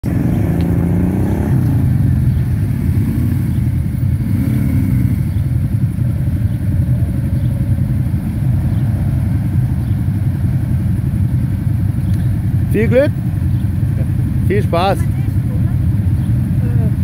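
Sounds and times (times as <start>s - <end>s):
engine revving: 0.0s - 6.7s
quad bike engines rumbling: 0.0s - 17.0s.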